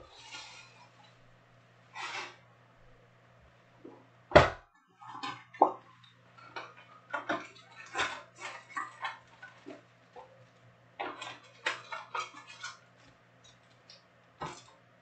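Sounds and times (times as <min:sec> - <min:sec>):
thump: 0:04.3 - 0:04.6.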